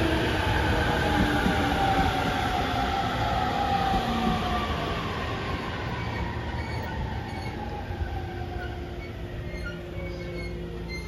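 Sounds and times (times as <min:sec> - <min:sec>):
wheel or brake squeaks: 0:05.9 - 0:07.6, 0:08.6 - 0:11.0.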